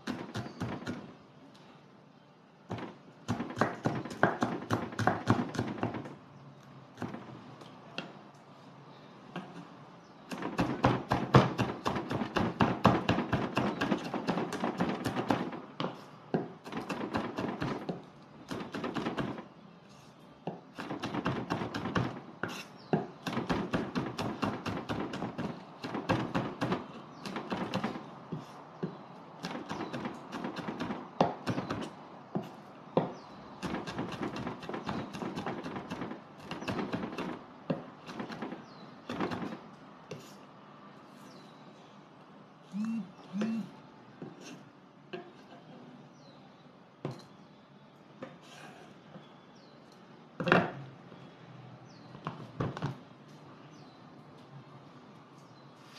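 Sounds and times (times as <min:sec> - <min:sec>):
knife chopping on wooden board: 0:02.7 - 0:06.1.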